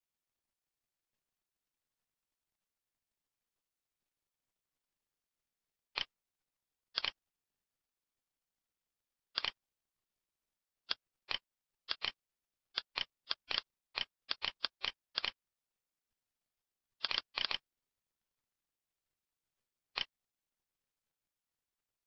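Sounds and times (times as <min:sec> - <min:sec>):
computer mouse clicks: 0:05.9 - 0:06.2, 0:06.9 - 0:07.2, 0:09.3 - 0:09.6, 0:10.9 - 0:15.4, 0:17.0 - 0:17.7, 0:19.9 - 0:20.2.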